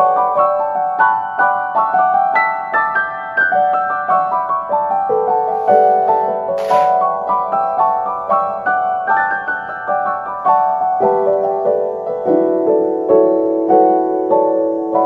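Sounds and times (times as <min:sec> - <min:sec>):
gentle piano melody: 0:00.0 - 0:15.0
short hiss: 0:05.6 - 0:07.0.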